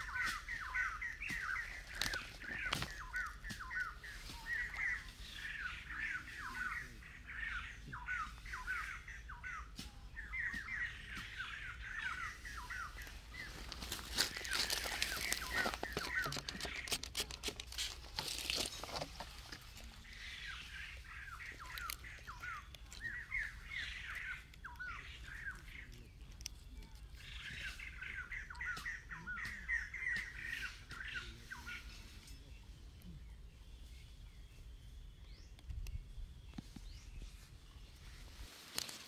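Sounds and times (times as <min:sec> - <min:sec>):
bird chirping: 0:00.0 - 0:39.0
clicks and rustling: 0:13.0 - 0:20.0.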